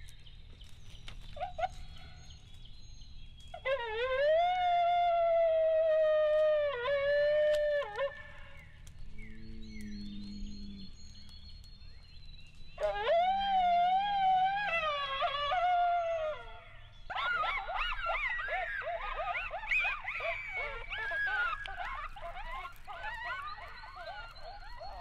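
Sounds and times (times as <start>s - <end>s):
coyotes yipping and yelping: 0.0s - 25.0s
coyote howling: 3.6s - 10.9s, 12.8s - 25.0s.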